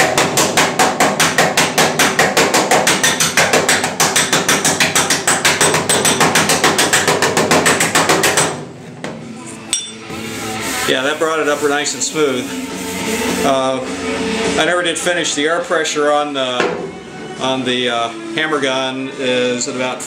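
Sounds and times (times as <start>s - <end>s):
air hammer striking metal panel: 0.0s - 8.7s.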